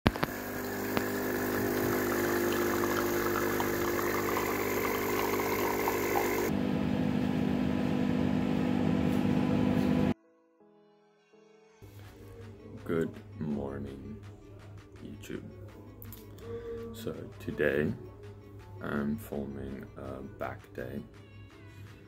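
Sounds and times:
coffee pouring into mug: 0.1s - 6.5s
espresso machine pump running: 0.1s - 10.1s
microwave oven humming: 0.1s - 10.2s
faint music: 11.8s - 22.0s.

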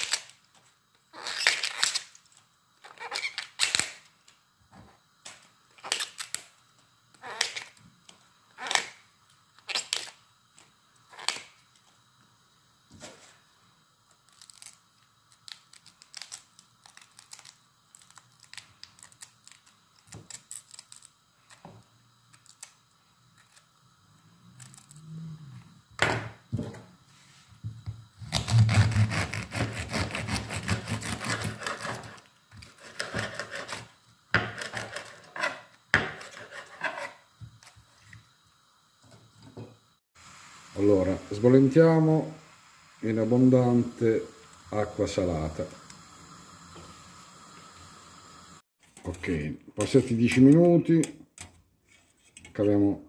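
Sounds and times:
artichoke leaves snapping: 3.1s - 4.1s, 14.3s - 21.1s.

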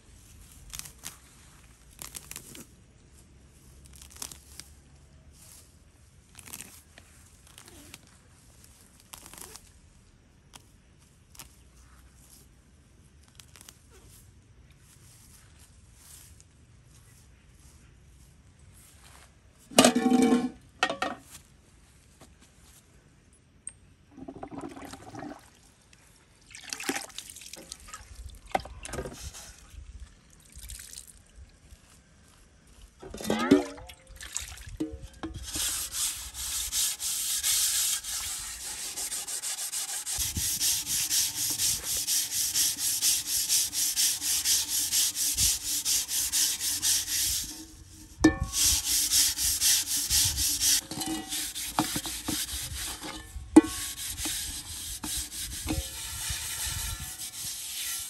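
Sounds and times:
rapid scraping strokes: 35.2s - 58.0s.

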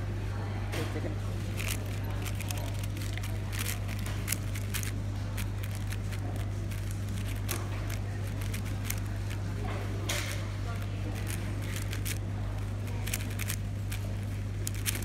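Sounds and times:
steady low hum: 0.0s - 15.0s
puzzle cube clicking: 1.6s - 9.4s, 11.2s - 12.2s, 13.0s - 15.0s.

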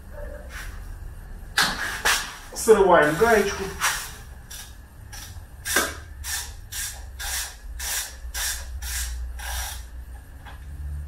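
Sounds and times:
ratchet wrench clicking: 4.5s - 9.9s.

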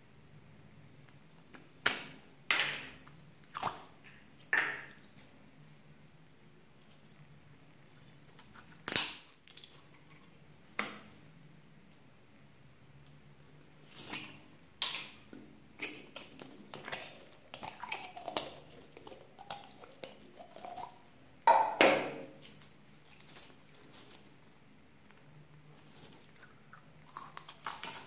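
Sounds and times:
slime squelching: 2.1s - 6.0s, 13.5s - 28.0s.

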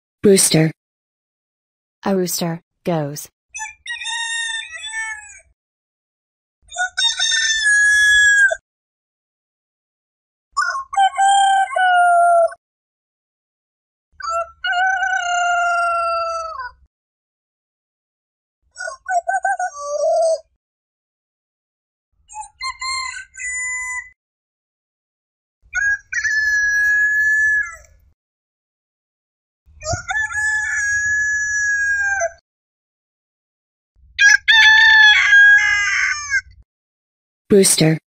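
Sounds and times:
rooster crowing: 34.2s - 36.4s.

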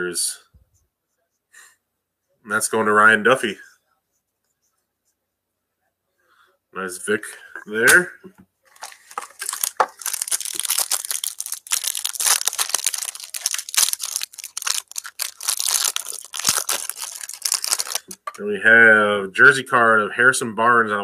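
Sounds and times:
foil wrappers crinkling: 8.7s - 18.4s.

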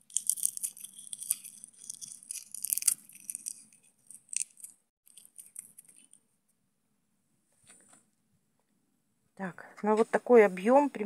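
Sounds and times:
dried chili pods crackling: 0.0s - 6.2s.

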